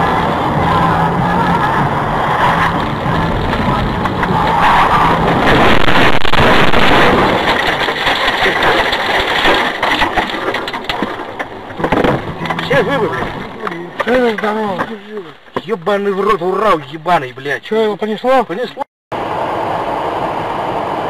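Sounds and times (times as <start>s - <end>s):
vehicle engine and road noise: 0.0s - 15.8s, 19.1s - 21.0s
knocks and clatter: 2.3s - 15.8s.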